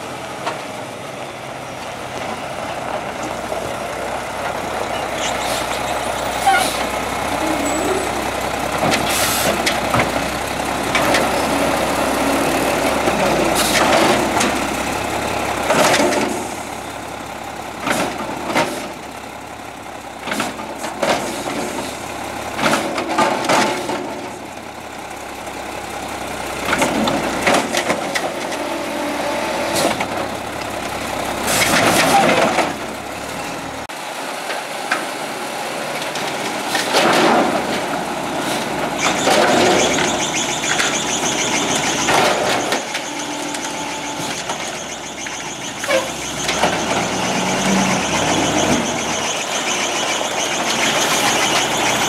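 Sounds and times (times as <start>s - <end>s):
garbage truck diesel engine running: 0.0s - 52.0s
hydraulic arm lifting trash cart: 36.0s - 52.0s.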